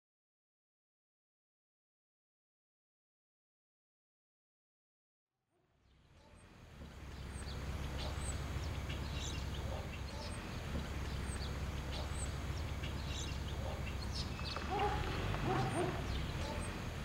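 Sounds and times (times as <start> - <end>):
steady low hum: 6.0 - 17.0
high bird chirps: 6.2 - 17.0.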